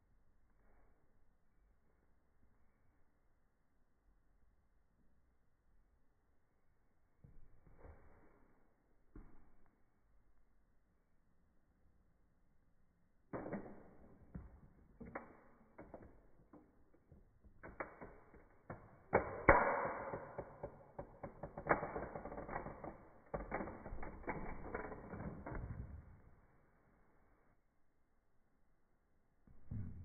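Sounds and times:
toy car creaking and crunching: 20.2 - 25.6.

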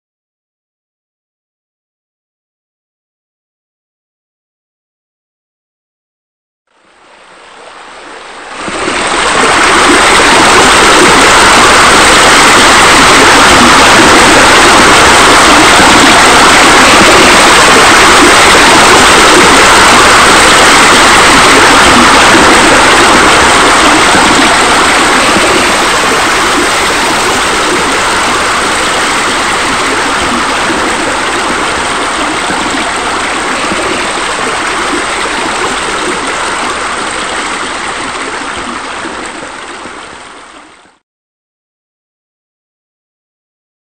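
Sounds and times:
flowing splashing water: 7.1 - 41.0.

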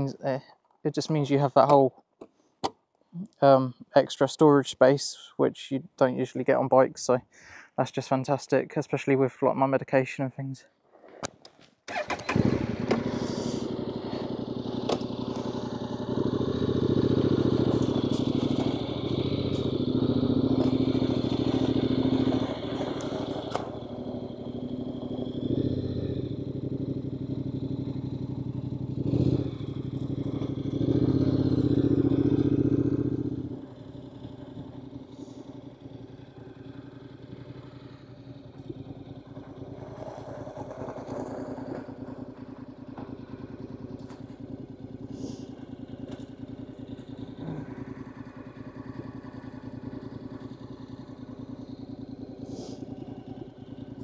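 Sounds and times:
motorcycle engine pulling away: 11.9 - 54.0.

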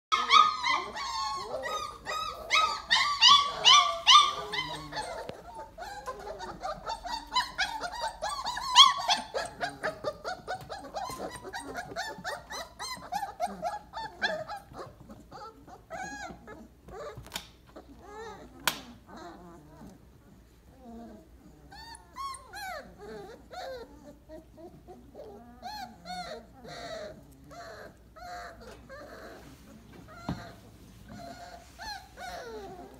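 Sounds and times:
puppies whining: 0.1 - 32.9.

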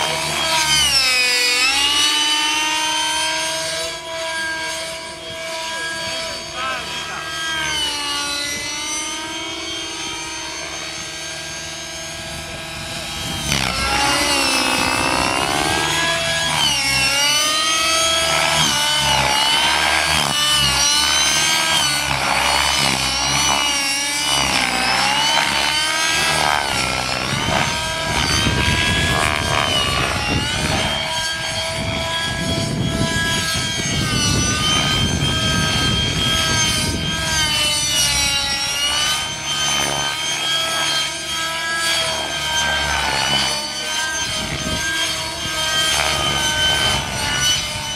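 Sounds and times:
model helicopter whine: 0.0 - 47.9.

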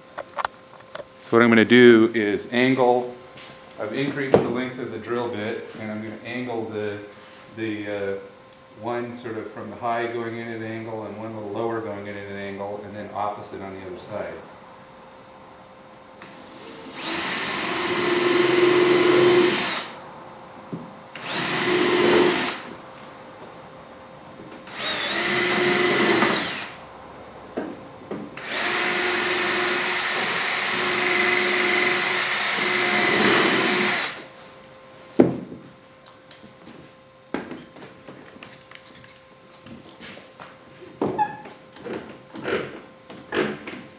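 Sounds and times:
cordless drill boring into wood: 16.2 - 20.0, 21.2 - 22.7, 24.7 - 26.8, 28.4 - 34.2.

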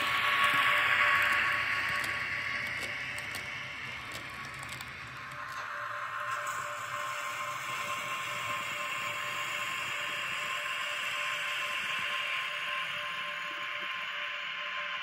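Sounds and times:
model train motor whirring: 0.0 - 5.6
wheels rolling on rails: 0.0 - 5.8.

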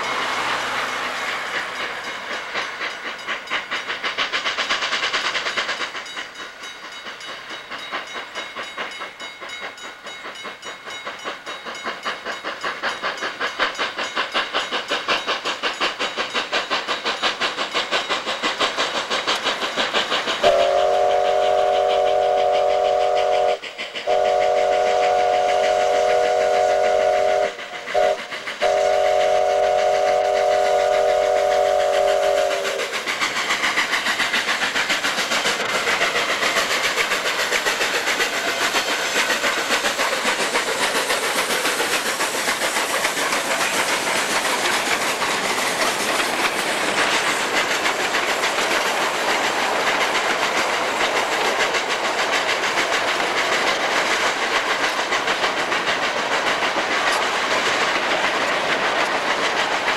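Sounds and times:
steam locomotive exhaust: 0.0 - 59.9
train wheels on rail: 0.0 - 59.9
steam locomotive whistle: 20.4 - 33.2.

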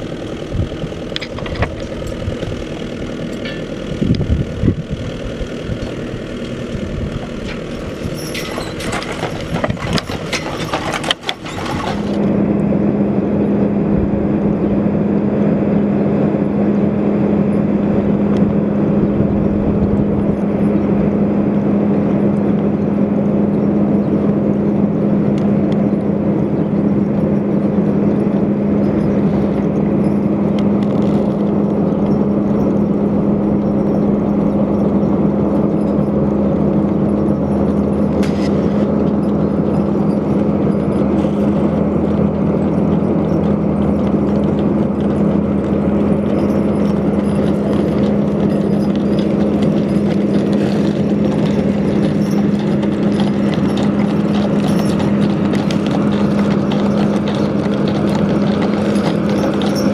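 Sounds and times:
diesel engine idling: 0.0 - 59.9
steady engine drone: 0.0 - 59.9
clinks and knocks: 3.2 - 3.8, 7.4 - 12.2, 26.6 - 59.9.

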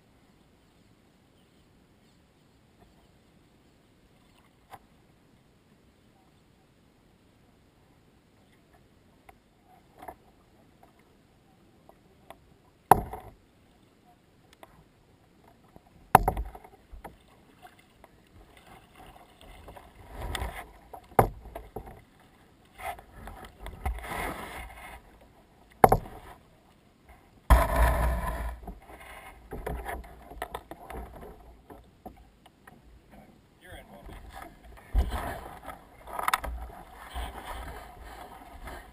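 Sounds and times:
paddle splashes: 15.5 - 26.5, 33.8 - 38.9
paddle knocking on hull: 16.1 - 17.2, 21.0 - 22.0, 25.8 - 26.2, 27.5 - 28.9
hull scraping onto bank: 27.5 - 30.2.

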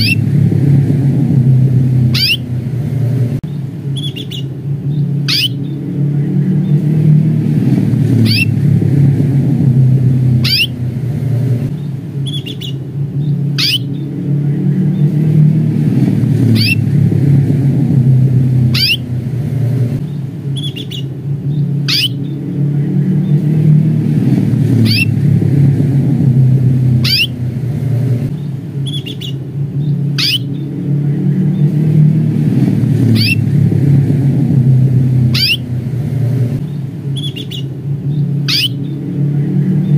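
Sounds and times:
canary chirping: 0.0 - 0.3, 2.0 - 2.6, 3.5 - 5.8, 8.1 - 8.6, 10.3 - 14.1, 16.4 - 16.9, 18.6 - 22.4, 24.8 - 25.2, 27.0 - 30.7, 33.0 - 33.5, 35.2 - 35.8, 36.6 - 39.0
low rumble: 0.0 - 39.9.

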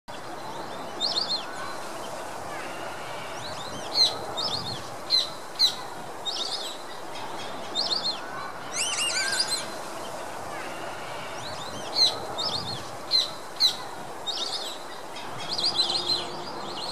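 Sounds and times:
background hiss: 0.1 - 16.9
ducks whistling calls: 8.7 - 9.8.

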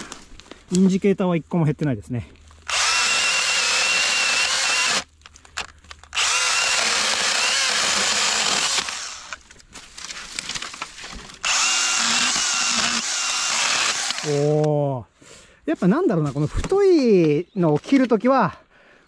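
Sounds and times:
chainsaw cutting branches: 2.6 - 5.1, 6.1 - 9.5, 11.4 - 14.5.

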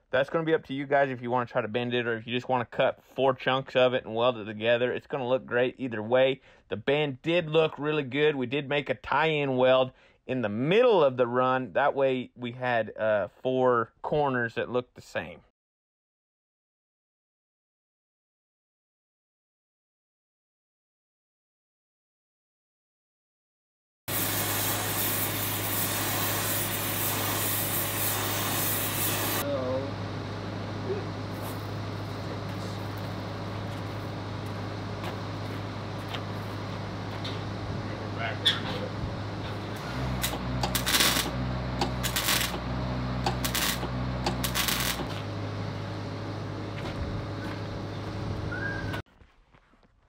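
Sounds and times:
crackling arc welds: 24.1 - 29.4, 39.7 - 45.3
low hum: 29.2 - 49.0.

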